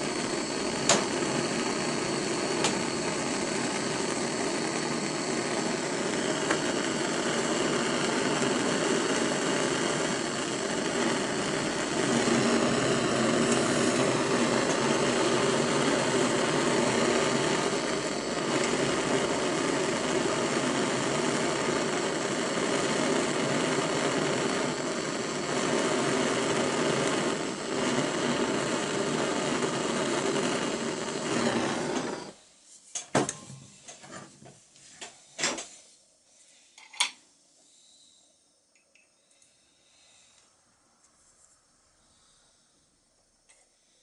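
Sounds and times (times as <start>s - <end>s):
gas torch hissing: 0.0s - 32.5s.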